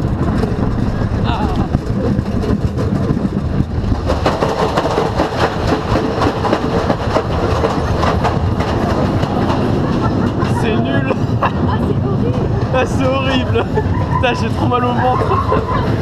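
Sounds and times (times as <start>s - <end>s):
roller coaster rattling on track: 0.0s - 16.0s.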